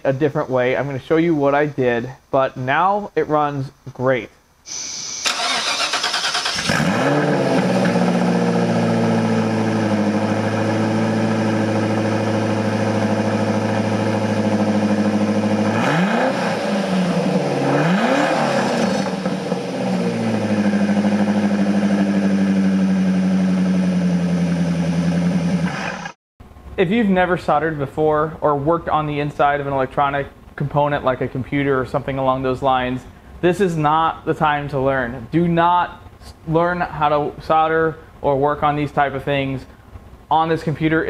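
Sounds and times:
car engine starting and idling: 0:04.7 - 0:26.2
engine revving: 0:04.7 - 0:26.2.

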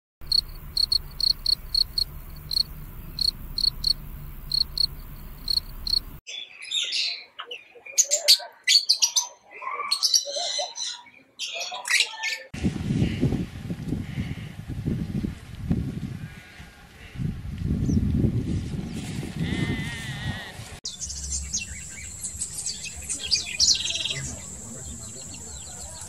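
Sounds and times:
field cricket chirping: 0:00.2 - 0:06.2, 0:21.0 - 0:26.0
lovebirds chattering: 0:00.2 - 0:06.2, 0:20.9 - 0:26.0.

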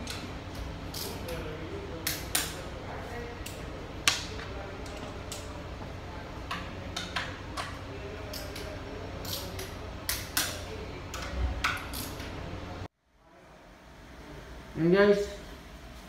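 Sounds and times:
low shop hum: 0:00.0 - 0:16.0
tools clicking on metal: 0:06.5 - 0:12.3.

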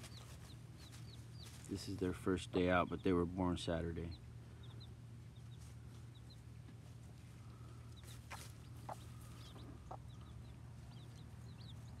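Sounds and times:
chicks peeping: 0:00.0 - 0:12.0
hen clucking: 0:04.1 - 0:12.0.

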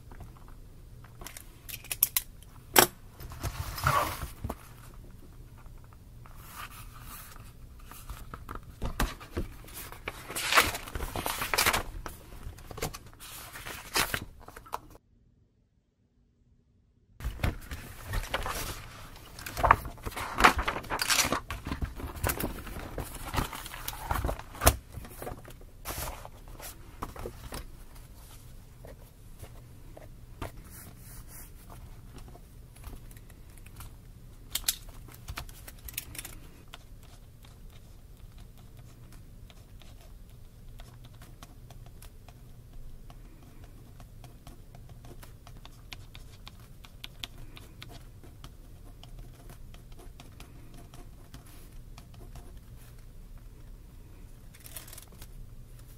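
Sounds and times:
paper rustling: 0:06.3 - 0:15.0, 0:17.2 - 0:34.0, 0:54.5 - 0:55.9.

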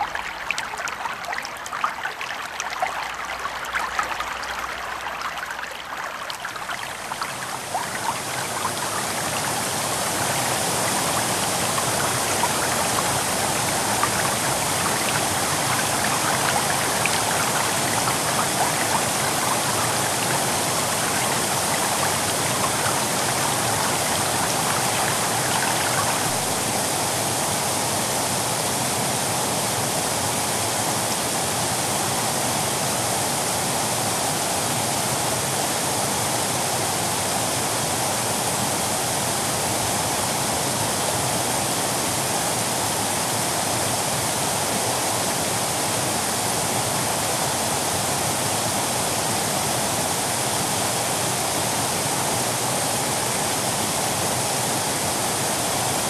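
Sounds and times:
river rushing over rocks: 0:00.0 - 0:26.6.

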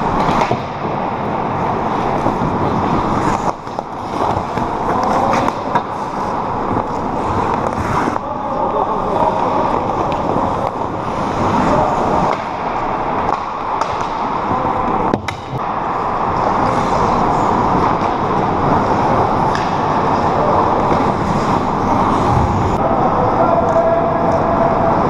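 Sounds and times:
loud steady noise: 0:00.0 - 0:25.0
skates scraping on ice: 0:01.6 - 0:08.3, 0:20.9 - 0:22.8.

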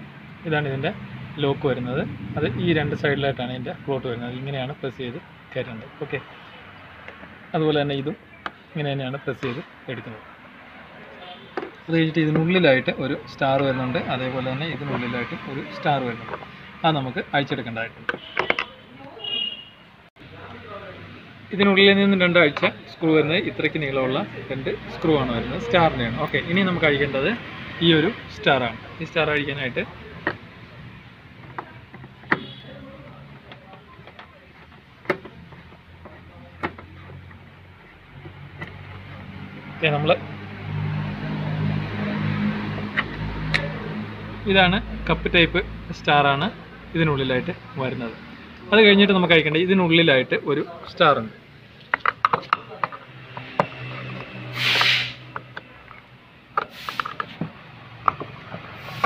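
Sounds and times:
short hiss: 0:54.5 - 0:55.2, 0:56.7 - 0:57.1.

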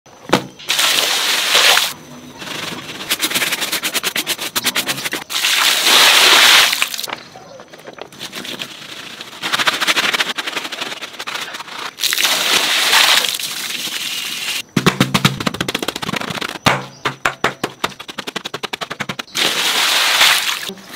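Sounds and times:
water pouring and splashing: 0:00.6 - 0:02.0, 0:05.2 - 0:07.1, 0:11.6 - 0:14.6, 0:19.4 - 0:20.7
hand-scrubbing wet fabric on tile: 0:00.7 - 0:07.1, 0:17.9 - 0:20.7.

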